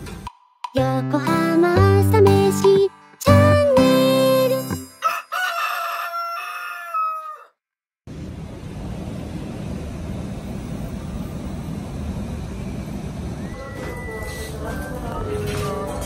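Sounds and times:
rooster crowing: 0:05.0 - 0:07.6, 0:13.4 - 0:15.2
street traffic noise: 0:08.1 - 0:16.0.

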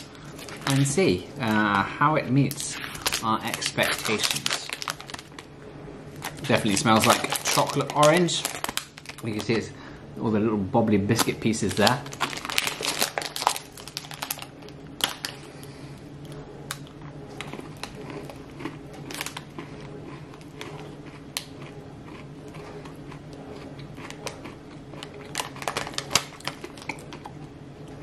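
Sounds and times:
steady low hum: 0:00.0 - 0:28.0
person chewing crunchy food: 0:16.2 - 0:27.4.

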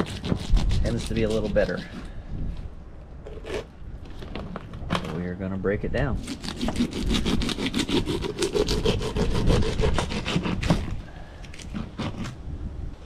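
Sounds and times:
knife sawing through fish: 0:00.0 - 0:02.1, 0:06.2 - 0:12.4.

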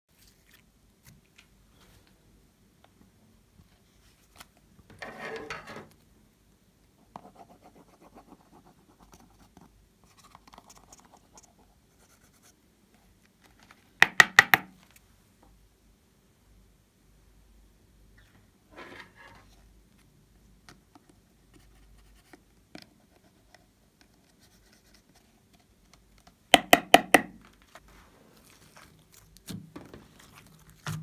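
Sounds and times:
scratchy rustling of craft materials: 0:27.4 - 0:31.0.

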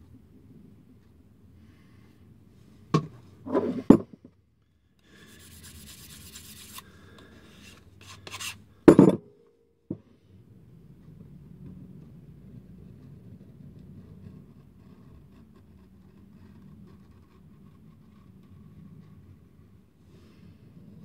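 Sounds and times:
knife scraping on sharpening block: 0:05.2 - 0:06.9, 0:07.6 - 0:08.6.

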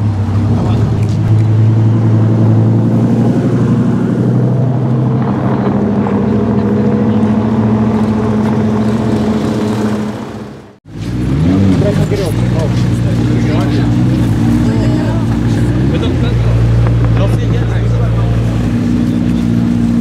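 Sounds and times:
car engine deep exhaust note: 0:00.0 - 0:10.4.

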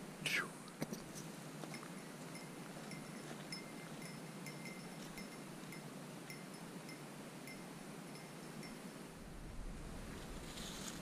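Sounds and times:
faint outdoor hiss: 0:00.0 - 0:11.0
small metal bell tinkling: 0:01.7 - 0:08.9.

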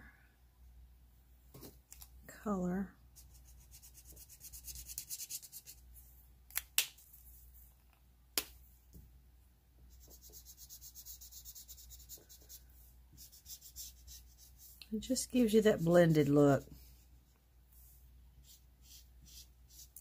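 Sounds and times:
marker rubbing on glossy paper: 0:03.2 - 0:05.8, 0:09.9 - 0:14.8, 0:17.8 - 0:20.0.

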